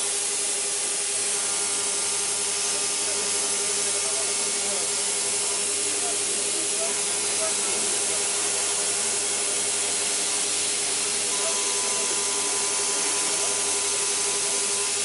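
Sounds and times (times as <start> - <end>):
higher machine tone: 11.2 - 15.0.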